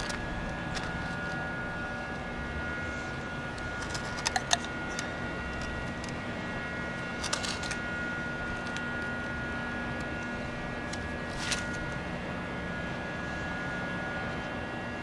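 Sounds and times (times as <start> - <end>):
steady hum: 0.0 - 15.0
clicks of handling pipe fittings: 3.8 - 5.0.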